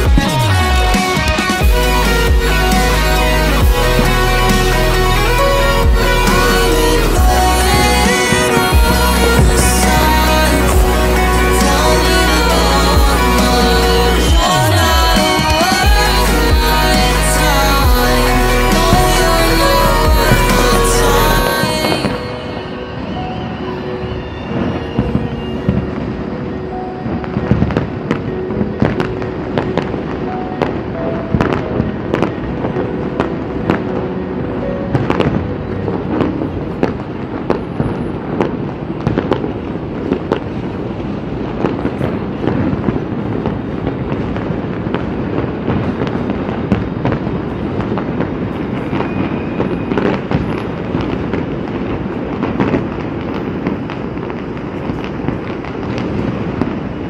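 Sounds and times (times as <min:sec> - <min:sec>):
fireworks bangs and crackling: 0:00.0 - 0:57.0.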